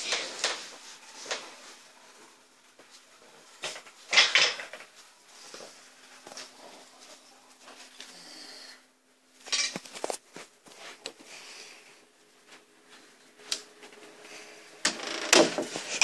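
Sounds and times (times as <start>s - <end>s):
door rattling and rubbing: 14.9s - 16.0s.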